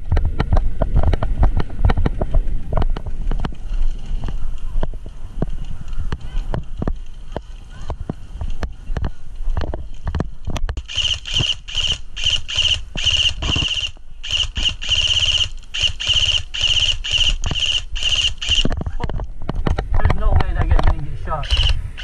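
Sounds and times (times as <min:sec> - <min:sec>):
airsoft rifle firing bursts: 0:10.8 - 0:18.7, 0:21.4 - 0:22.0.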